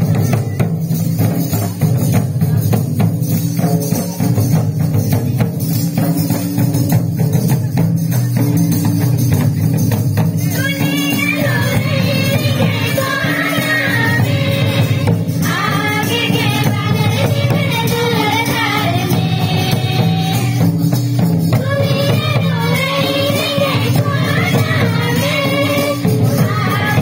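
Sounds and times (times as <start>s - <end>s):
group singing devotional song: 10.6s - 20.8s, 21.5s - 27.0s.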